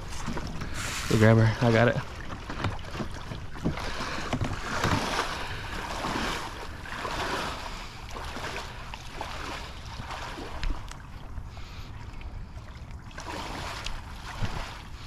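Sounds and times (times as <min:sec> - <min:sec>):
flowing river: 0:00.0 - 0:15.0
person wading through water: 0:00.0 - 0:15.0.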